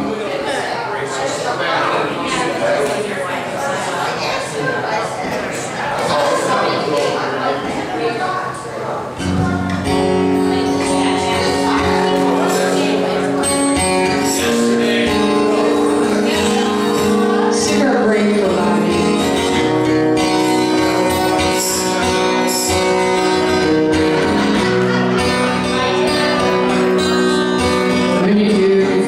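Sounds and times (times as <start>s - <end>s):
acoustic guitar playing: 9.0s - 29.0s
woman singing: 16.4s - 19.5s, 28.2s - 29.0s.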